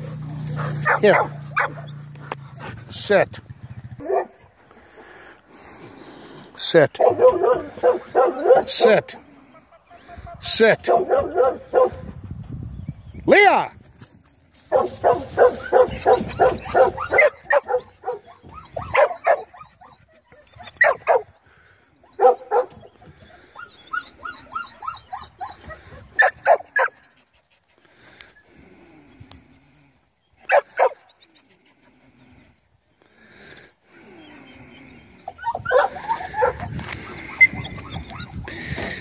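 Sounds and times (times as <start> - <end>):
dog barking: 0.6 - 1.9, 4.0 - 4.4, 7.0 - 9.0, 10.8 - 12.1, 14.7 - 19.9, 20.8 - 21.3, 22.2 - 22.8, 26.2 - 27.0, 30.5 - 31.0, 35.4 - 38.4
dog whining: 15.5 - 21.2, 22.0 - 26.9, 35.2 - 38.8.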